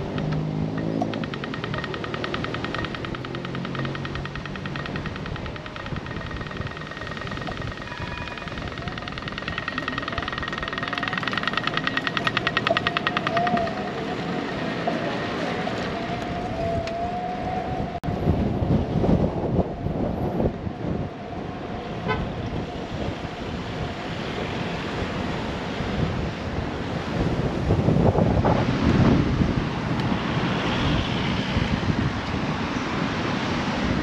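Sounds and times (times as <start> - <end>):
street noise: 0.0 - 34.0
bell ringing in fast trill: 0.8 - 14.9
steady high squeal: 1.1 - 18.0
wind buffeting microphone: 2.7 - 34.0.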